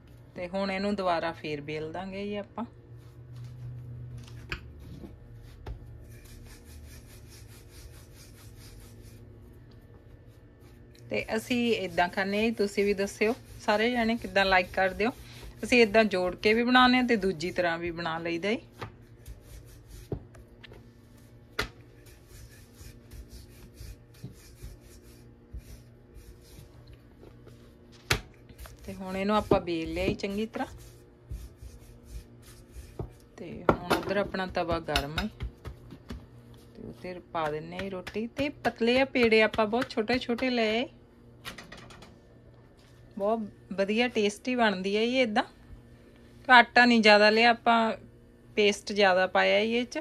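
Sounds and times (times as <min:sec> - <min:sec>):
rolling pin rubbing strokes: 0:04.8 - 0:09.5, 0:10.1 - 0:33.4.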